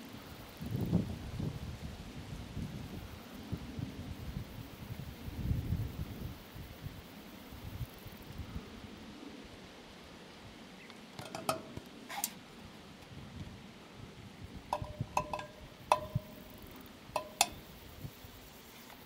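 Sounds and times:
faint steady background noise: 0.0s - 19.0s
sharp clicks with ringing tone: 14.8s - 17.7s.

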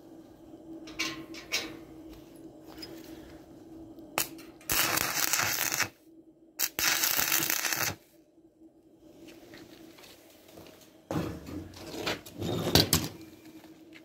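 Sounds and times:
welding arc strike: 4.2s - 5.9s, 6.6s - 8.0s
crackling welding arc: 4.2s - 6.0s, 6.6s - 8.0s.

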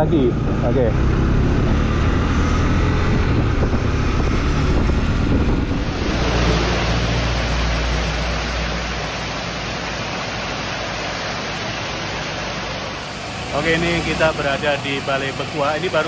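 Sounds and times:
vehicle rumble: 0.0s - 16.0s
heavy rain hissing: 5.6s - 16.0s.

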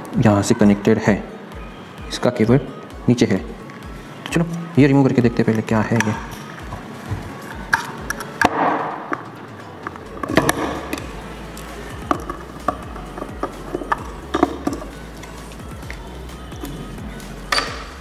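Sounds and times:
screwdriver tapping metal parts: 12.0s - 14.9s, 17.5s - 17.9s.

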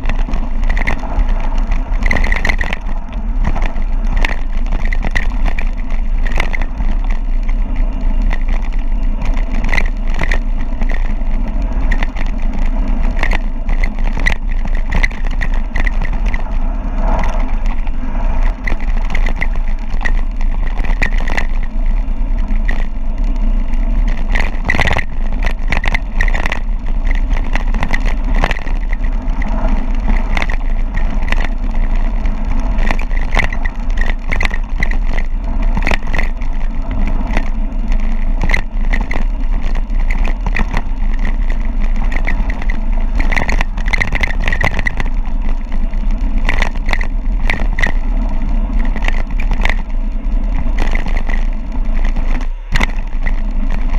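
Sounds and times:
bike knocking and clattering: 0.0s - 53.9s
wind buffeting microphone: 0.0s - 53.9s.

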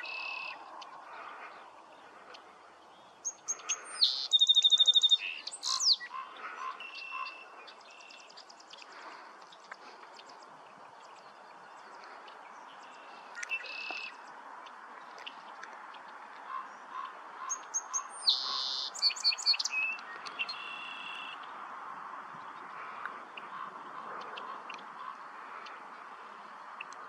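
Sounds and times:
songbirds chirping and singing: 0.0s - 21.5s.

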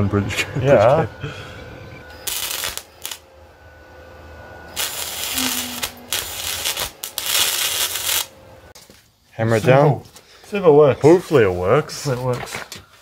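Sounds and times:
welder arc crackling: 2.1s - 3.3s, 4.7s - 8.4s.

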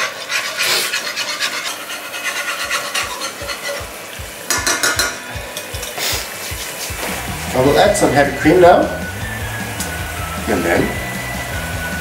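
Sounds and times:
metal spoon scraping a pot: 0.0s - 7.0s.

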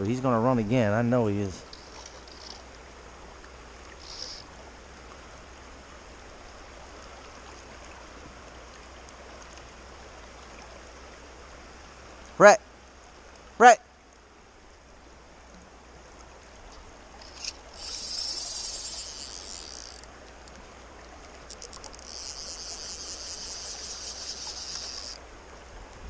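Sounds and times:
creek rushing: 0.0s - 26.0s
fishing reel drag buzzing: 1.6s - 2.8s, 3.8s - 4.6s, 17.2s - 20.6s, 21.5s - 25.2s.

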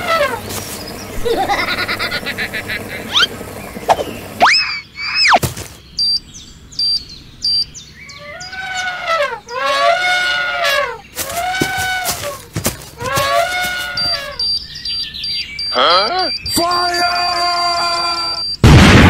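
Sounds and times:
elephant trumpeting: 0.0s - 0.7s, 1.5s - 5.4s, 8.1s - 14.7s
short high beeps: 15.6s - 18.6s.

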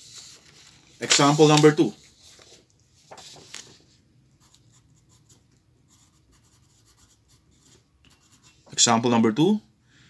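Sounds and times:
pencil scratching on paper: 4.4s - 8.7s.

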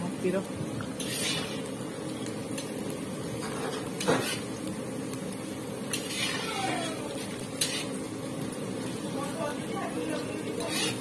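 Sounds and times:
onions sizzling in oil: 0.0s - 11.0s
metal ladle scraping pan: 0.9s - 1.8s, 3.4s - 4.6s, 5.9s - 8.1s, 10.5s - 11.0s.

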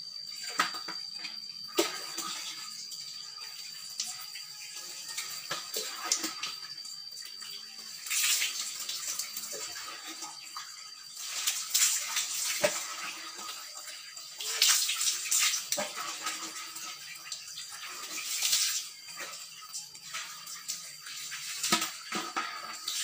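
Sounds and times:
water pouring and splashing: 0.3s - 23.0s
water sloshing in bucket: 0.4s - 2.7s, 8.0s - 13.7s, 14.3s - 23.0s.

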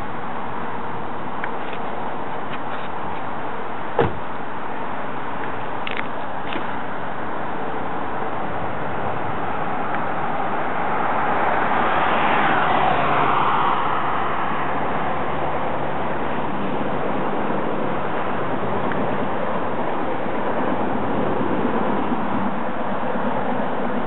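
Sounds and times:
highway traffic noise: 0.0s - 24.0s
vehicle passing by: 8.3s - 24.0s.

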